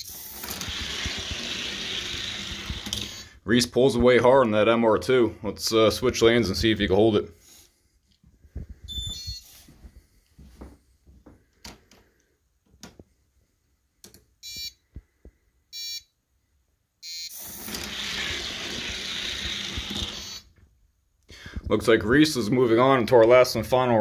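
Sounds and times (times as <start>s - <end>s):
toy cars rolling down track: 0.0s - 3.3s, 17.4s - 20.5s
short countdown beeps: 15.8s - 16.1s, 17.0s - 17.3s.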